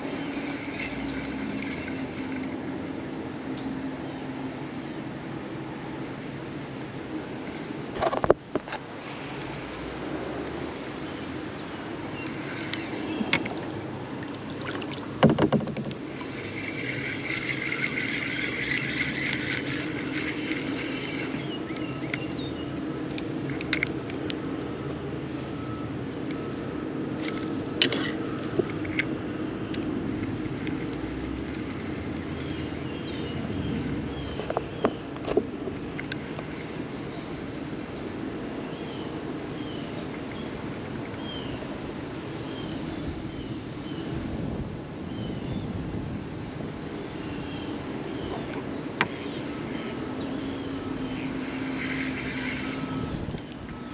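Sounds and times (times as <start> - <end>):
fishing reel cranking: 0.0 - 2.6, 16.1 - 24.2
knocks against plastic kayak: 15.2 - 16.0.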